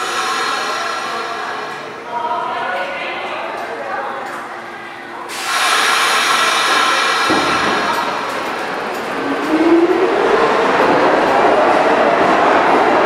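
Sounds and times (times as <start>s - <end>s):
subway train rush of noise: 0.0s - 13.0s
train knock: 6.4s - 9.6s.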